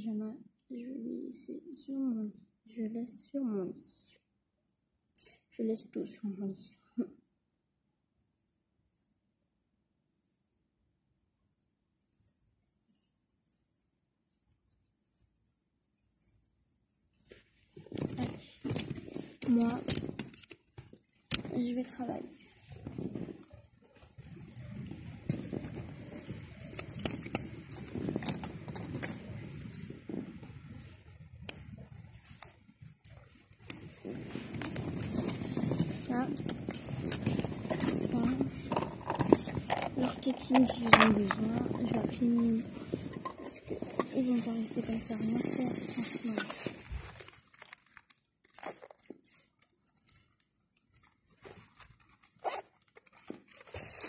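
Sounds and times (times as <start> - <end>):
fabric rustling: 12.0 - 26.8, 31.8 - 54.0.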